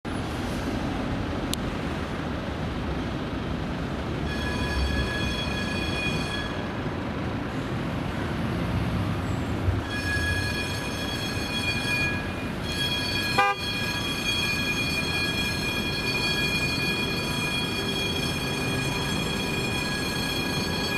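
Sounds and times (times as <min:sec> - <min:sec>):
city traffic noise: 0:00.0 - 0:20.9
tram rumbling: 0:00.0 - 0:20.9
high ringing tone: 0:04.2 - 0:07.0, 0:09.8 - 0:20.9.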